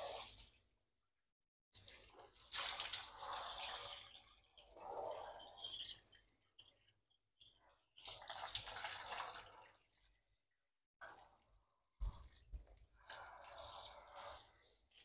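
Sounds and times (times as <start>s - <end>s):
water spraying from shower hose: 13.0s - 15.0s.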